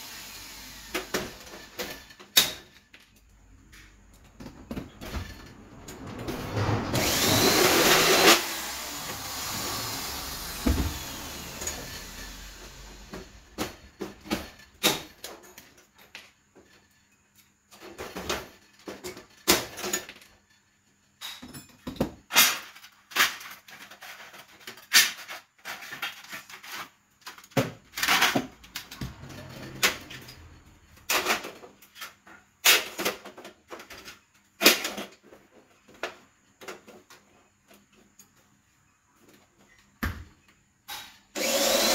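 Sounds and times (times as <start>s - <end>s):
power drill: 0.0s - 2.1s, 6.6s - 13.8s, 40.9s - 41.9s.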